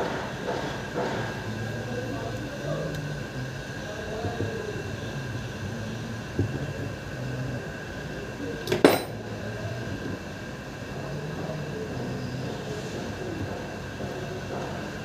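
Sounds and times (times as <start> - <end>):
metal parts being handled: 8.7 - 9.2
sharp metallic clank: 8.7 - 9.2.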